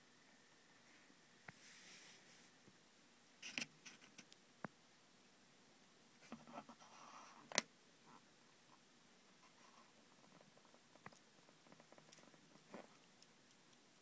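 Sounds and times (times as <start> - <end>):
light scratchy rustle: 0.8 - 2.6.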